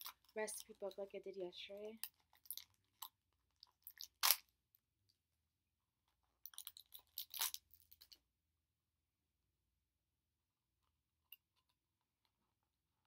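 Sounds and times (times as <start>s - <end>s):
plastic tearing and crinkling: 6.5s - 7.7s
plastic packet ripping: 7.0s - 7.6s.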